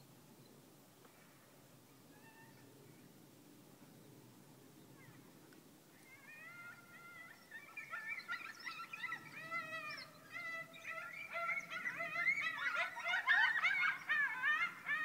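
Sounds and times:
coyotes howling and yipping: 2.1s - 3.0s, 4.9s - 15.0s.

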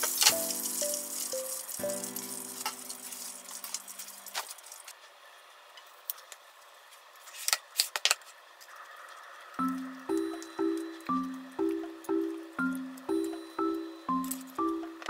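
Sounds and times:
background music: 0.0s - 3.6s, 9.6s - 15.0s
oil sizzling in frying pan: 0.0s - 4.9s.

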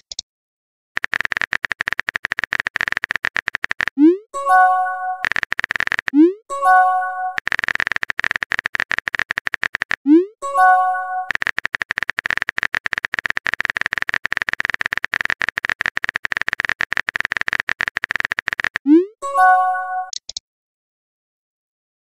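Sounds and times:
rapid keyboard typing clicks: 1.0s - 19.0s, 20.0s - 20.4s
message chime: 4.3s - 5.2s, 6.5s - 7.4s, 10.4s - 11.3s, 18.9s - 20.1s.

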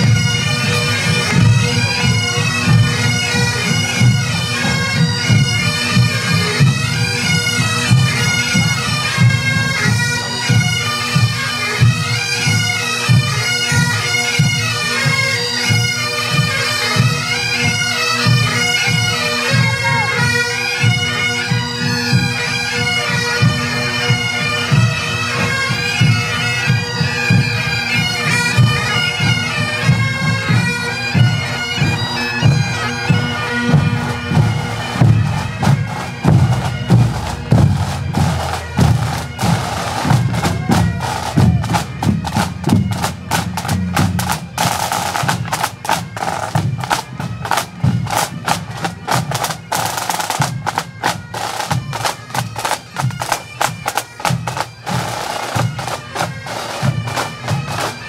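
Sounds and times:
bagpipes playing a march: 0.0s - 58.0s
drums beating steadily: 0.0s - 58.0s.

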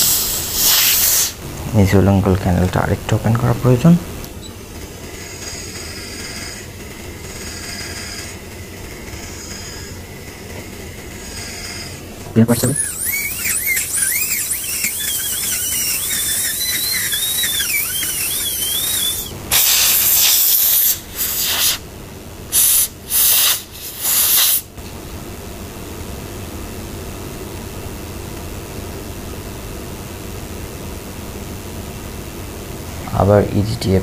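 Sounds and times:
air hiss blasts: 0.0s - 1.5s, 12.5s - 21.9s, 22.5s - 24.8s
dental drill whine: 0.0s - 24.8s
steady hiss: 0.0s - 34.0s.

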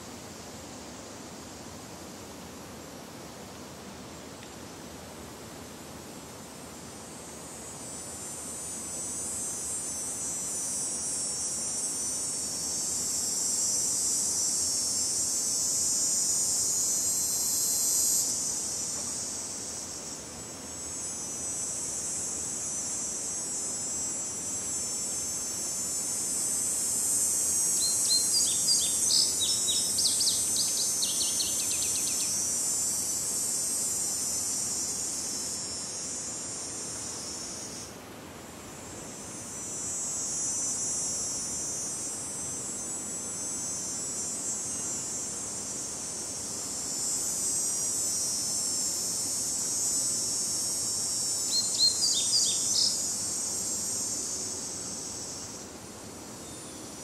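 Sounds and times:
high-pitched insect chorus: 0.0s - 57.0s
bird chirping: 51.5s - 53.0s.

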